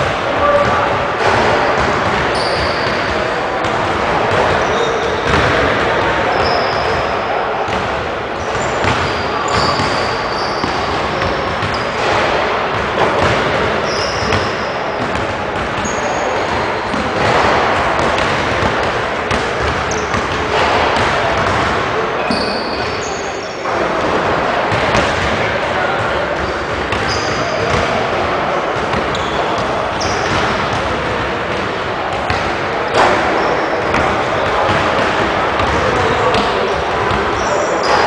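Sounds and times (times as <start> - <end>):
basketballs bouncing on hardwood: 0.6 - 7.0, 8.5 - 22.9, 24.7 - 25.4, 28.8 - 38.0
sneaker squeaks: 1.7 - 3.2, 4.3 - 5.6, 6.2 - 7.8, 8.4 - 12.2, 13.2 - 15.2, 15.8 - 18.4, 19.3 - 23.8, 26.4 - 27.9, 28.9 - 30.8, 33.0 - 38.0.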